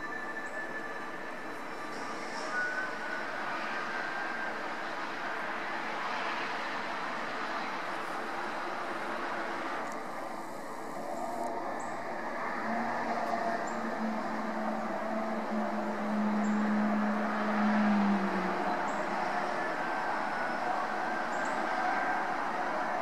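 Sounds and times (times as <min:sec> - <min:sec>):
steady background din: 0:00.0 - 0:23.0.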